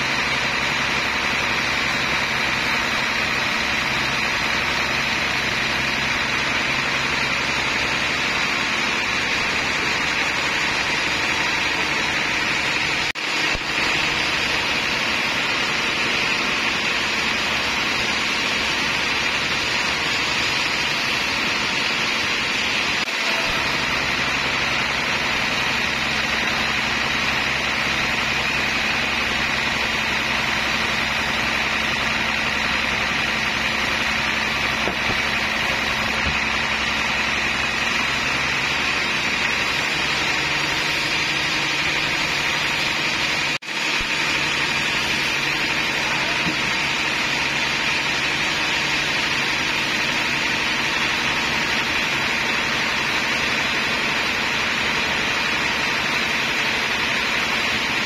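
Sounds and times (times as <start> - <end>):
band saw cutting wood: 0.0 - 58.0.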